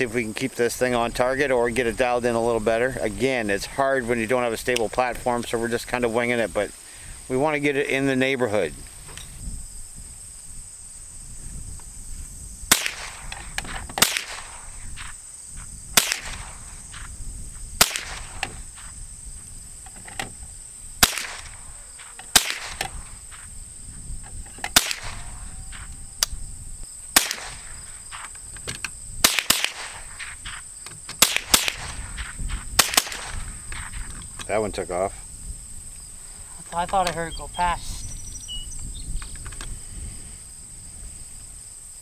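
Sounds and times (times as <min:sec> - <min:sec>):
rifle shots cracking: 0:12.7 - 0:15.1, 0:16.0 - 0:16.9, 0:17.8 - 0:18.7, 0:21.0 - 0:23.1, 0:24.7 - 0:25.9, 0:27.1 - 0:28.2, 0:29.2 - 0:30.6, 0:31.2 - 0:33.9.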